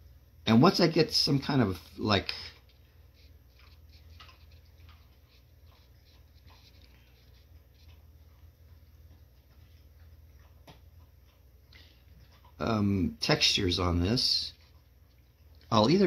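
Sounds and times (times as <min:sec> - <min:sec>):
low steady hum: 0:00.0 - 0:16.0
paintbrush scratching on paper: 0:03.1 - 0:08.1.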